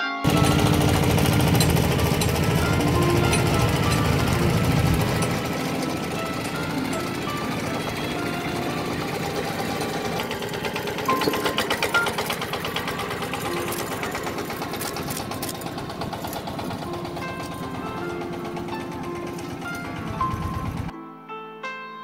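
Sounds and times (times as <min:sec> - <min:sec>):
diesel tractor engine running: 0:00.2 - 0:20.9.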